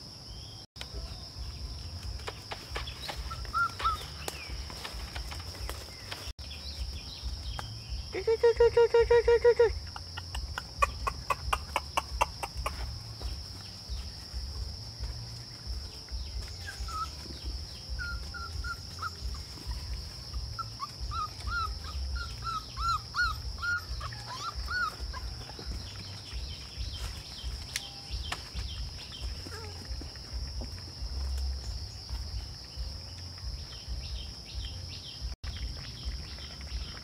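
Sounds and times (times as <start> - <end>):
insects droning: 0.0 - 37.0
rapid clicking calls: 8.2 - 12.9.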